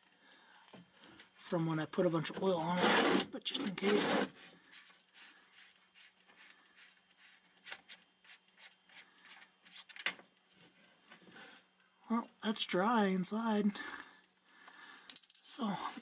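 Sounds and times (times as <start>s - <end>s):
rag rubbing on metal: 2.6s - 4.4s.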